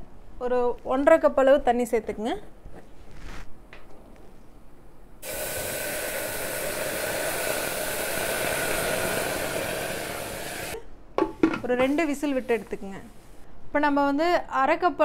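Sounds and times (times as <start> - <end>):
water sizzling in hot pot: 5.2 - 10.8.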